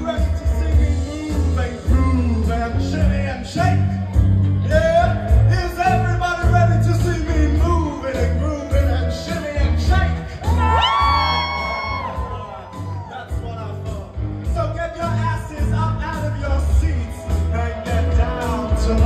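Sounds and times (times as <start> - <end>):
music with heavy bass line: 0.0 - 19.0
person singing into a microphone: 14.7 - 19.0.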